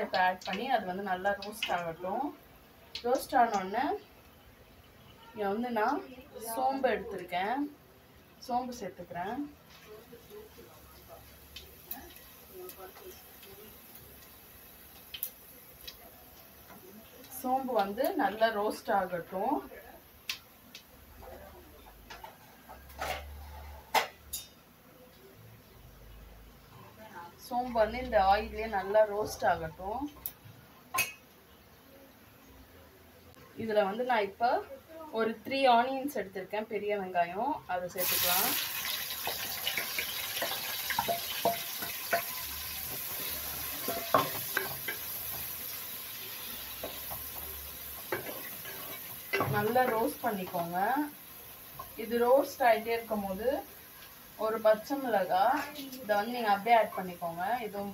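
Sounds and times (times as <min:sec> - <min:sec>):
seeds crackling in hot oil: 0:00.0 - 0:25.3, 0:27.4 - 0:31.2, 0:37.4 - 0:57.9.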